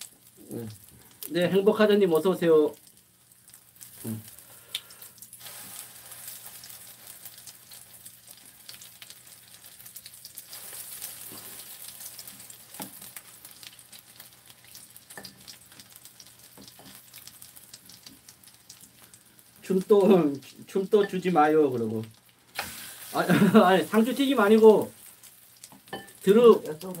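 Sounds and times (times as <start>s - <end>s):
battered shoots frying in oil: 0.0s - 27.0s.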